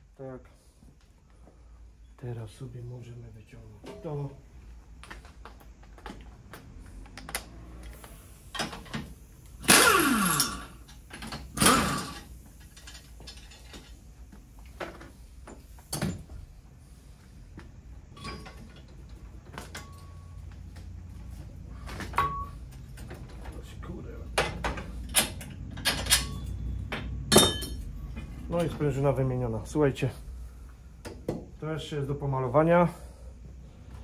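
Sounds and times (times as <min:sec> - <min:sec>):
metal clicks and clanks: 0:10.4 - 0:14.0, 0:24.3 - 0:26.6.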